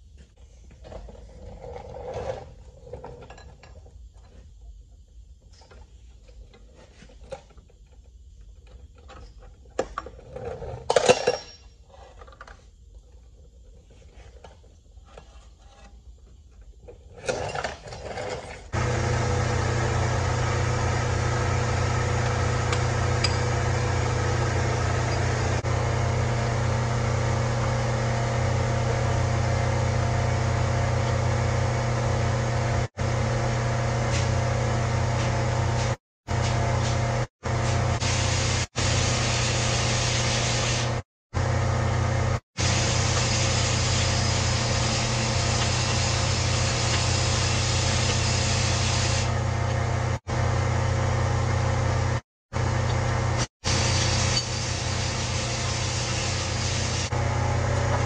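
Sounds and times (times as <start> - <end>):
loud machine hum: 18.7 - 58.0.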